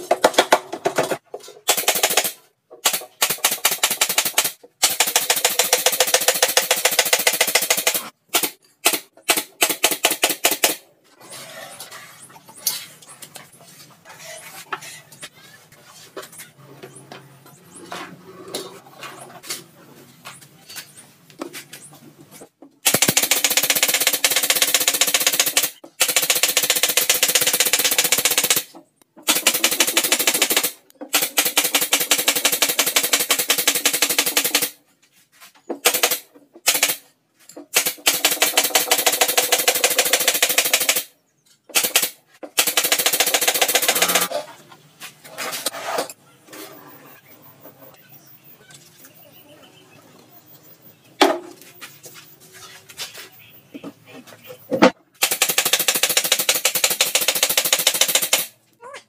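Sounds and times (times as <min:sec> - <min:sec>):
pneumatic nailer chattering: 0:00.1 - 0:10.8, 0:22.8 - 0:34.8, 0:35.8 - 0:41.1, 0:41.7 - 0:44.3, 0:55.2 - 0:58.5.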